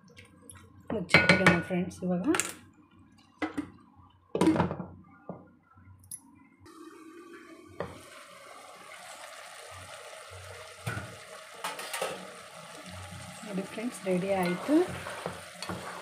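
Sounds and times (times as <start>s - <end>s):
curry simmering and bubbling: 6.7s - 16.0s
pot lid clanking: 10.8s - 12.4s, 14.4s - 16.0s.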